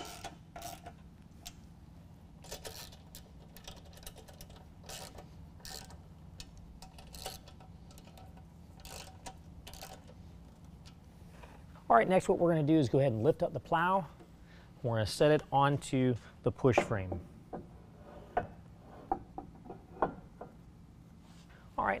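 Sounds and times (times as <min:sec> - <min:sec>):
ratchet wrench clicking: 0:00.0 - 0:01.6, 0:02.4 - 0:10.2.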